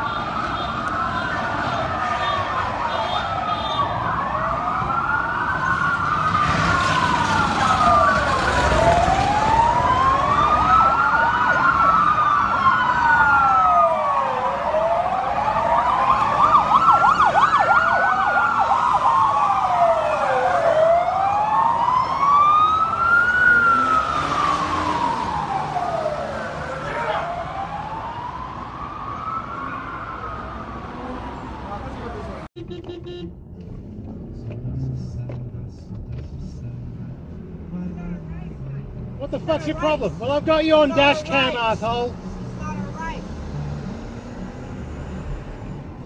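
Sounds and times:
siren fast yelp: 0.0s - 30.7s
police sirens wailing: 0.0s - 32.5s, 37.3s - 43.3s.

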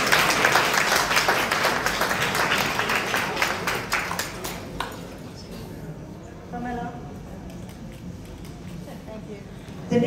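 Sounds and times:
audience applauding: 0.0s - 5.1s.

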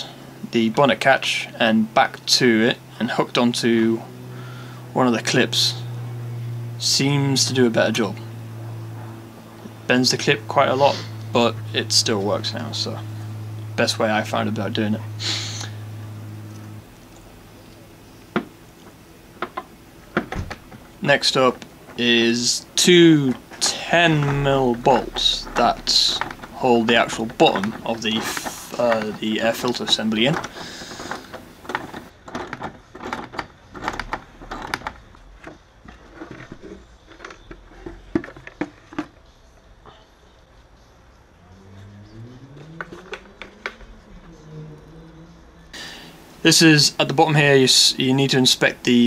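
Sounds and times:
steady low hum: 0.0s - 32.2s, 33.7s - 49.0s
clicks and knocks of plastic housing: 18.3s - 20.8s.

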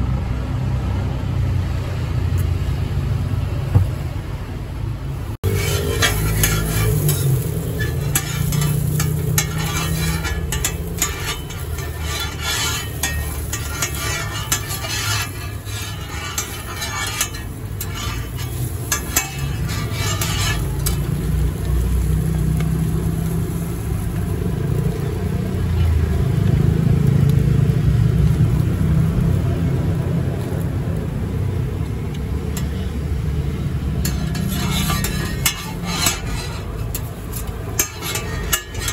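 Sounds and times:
low rumble of traffic: 0.0s - 38.9s
utensils scraping on griddle: 5.4s - 25.9s, 32.3s - 38.9s
food sizzling: 5.4s - 38.9s.

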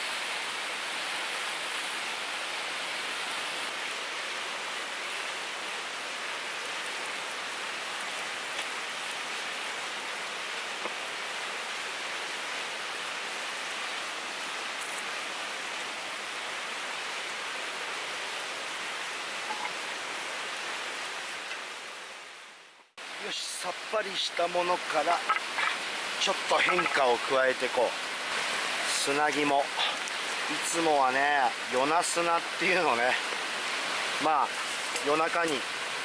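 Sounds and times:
river rapids rushing: 23.0s - 36.0s
wood fire crackling: 24.9s - 30.8s, 34.5s - 35.7s.

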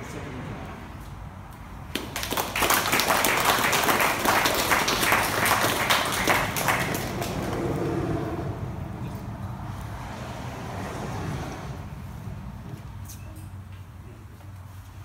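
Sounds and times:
audience applauding: 1.9s - 8.1s.

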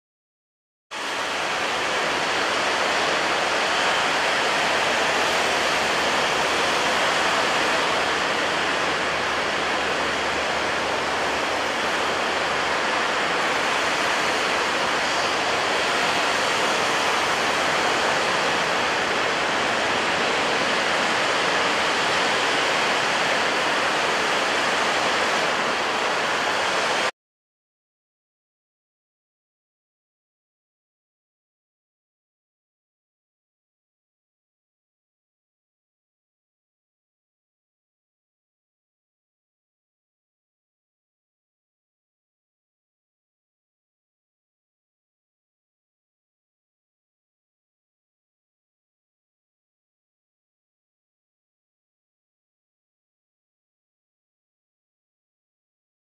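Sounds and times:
wind: 0.9s - 27.1s
rough surf: 1.0s - 27.1s.

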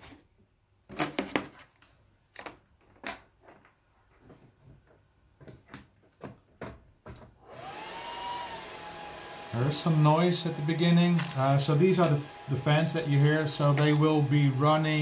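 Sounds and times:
cooling fans rushing and whining: 7.4s - 15.0s.

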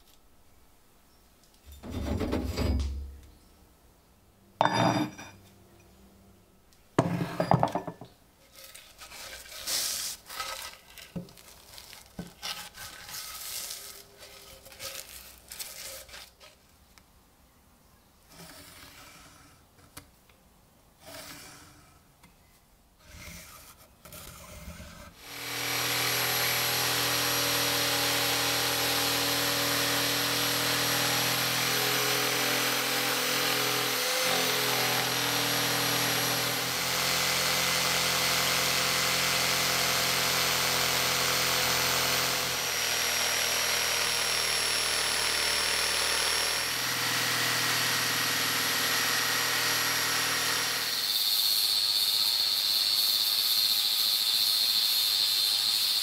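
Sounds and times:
small handling sounds: 8.0s - 17.1s
jigsaw cutting wood: 24.8s - 56.0s.

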